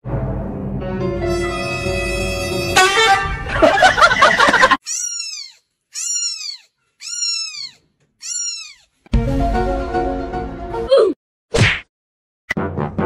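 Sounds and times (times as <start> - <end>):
music: 0.0 - 3.6, 9.1 - 11.0, 12.5 - 13.0
kitten mewing: 4.8 - 8.8.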